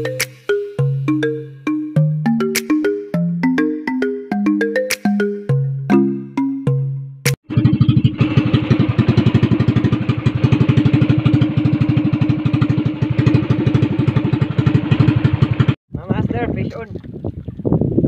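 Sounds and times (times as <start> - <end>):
boat engine chugging: 7.4 - 15.8.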